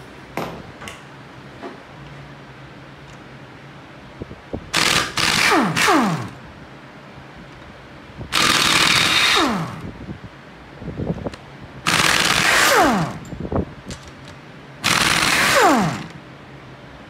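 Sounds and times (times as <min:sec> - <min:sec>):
air impact wrench hammering: 0:04.7 - 0:06.4, 0:08.3 - 0:09.9, 0:11.9 - 0:13.4, 0:14.8 - 0:16.2
tool spinning down whine: 0:08.3 - 0:09.9, 0:11.9 - 0:13.3, 0:14.8 - 0:16.2.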